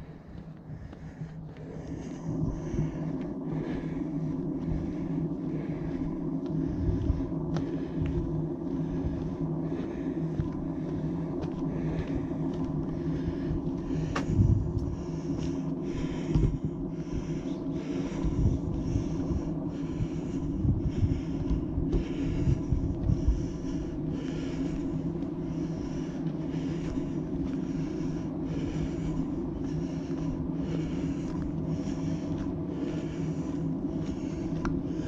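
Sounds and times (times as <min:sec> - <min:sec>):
footsteps on a trail: 0:00.0 - 0:35.0
steady low rumble: 0:00.0 - 0:35.0
low thumps: 0:12.8 - 0:17.3.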